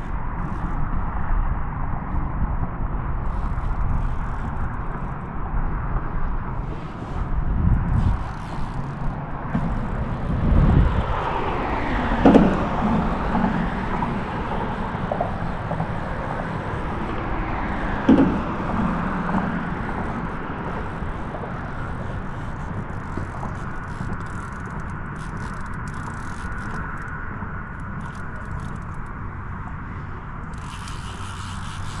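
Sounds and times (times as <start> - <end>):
traffic rushing over bridge: 0.0 - 32.0
sharp thumps: 5.9 - 26.0.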